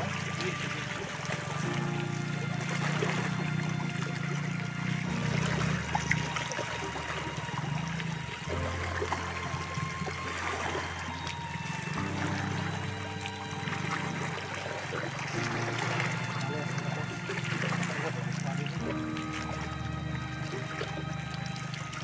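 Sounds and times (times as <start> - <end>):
water lapping among rocks: 0.0 - 22.0.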